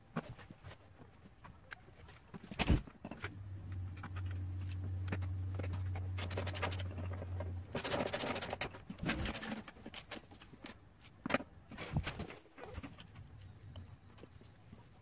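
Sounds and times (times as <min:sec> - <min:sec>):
parts and tools clattering: 0:02.3 - 0:13.9.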